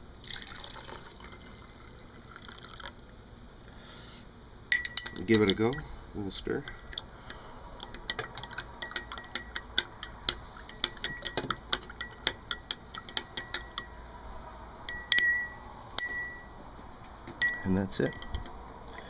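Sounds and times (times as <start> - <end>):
spoon clinking against glass: 4.7 - 5.9, 7.8 - 14.0, 14.9 - 16.5, 17.3 - 19.0.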